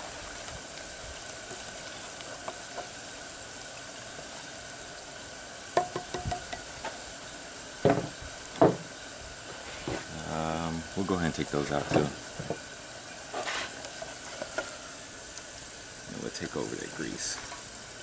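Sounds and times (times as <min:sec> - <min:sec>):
oil sizzling with fries: 0:00.0 - 0:18.0
sharp knocks: 0:07.8 - 0:08.9.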